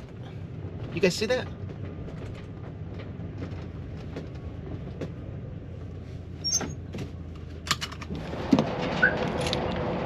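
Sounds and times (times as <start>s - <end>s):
cab clicks and rattles: 0.0s - 6.0s
motorhome engine rumble: 0.0s - 10.0s.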